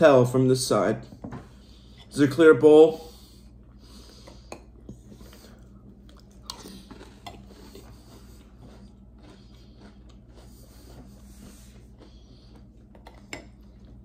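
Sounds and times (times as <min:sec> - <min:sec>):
chewing cereal: 0:04.8 - 0:14.0.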